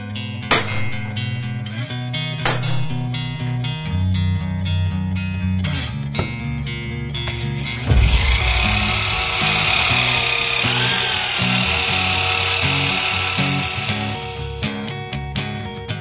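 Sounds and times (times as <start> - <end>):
guitar music: 0.0 - 16.0
electric drill boring through steel: 7.3 - 14.9.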